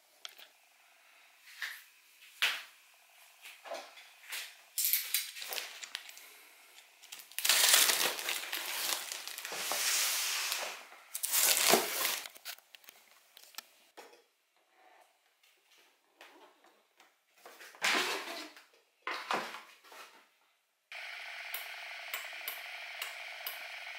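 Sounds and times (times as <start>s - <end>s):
packaging rustling and crinkling: 4.8s - 13.7s.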